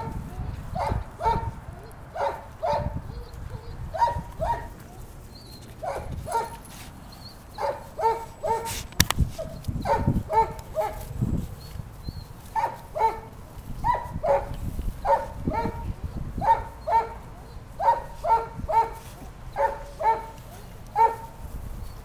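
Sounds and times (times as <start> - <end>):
puppies barking: 0.0 - 11.1, 11.7 - 21.4
sharp click: 8.8 - 9.2.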